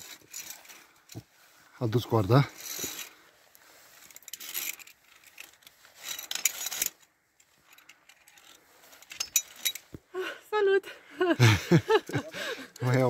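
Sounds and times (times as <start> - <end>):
climbing gear scraping on cable: 0.0 - 1.2, 2.2 - 9.9.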